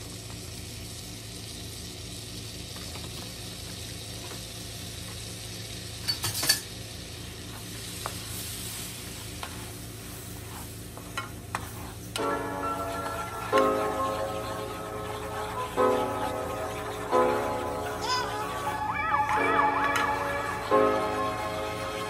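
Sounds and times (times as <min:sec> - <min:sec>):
butter sizzling in a frying pan: 0:00.0 - 0:18.8
music: 0:12.2 - 0:22.0.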